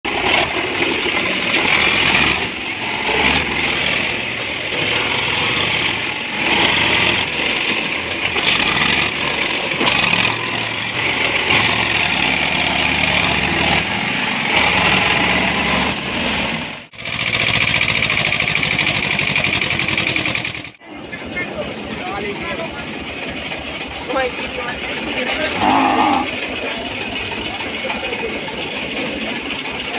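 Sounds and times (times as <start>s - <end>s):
diesel tractor engines running hard: 0.0s - 29.9s.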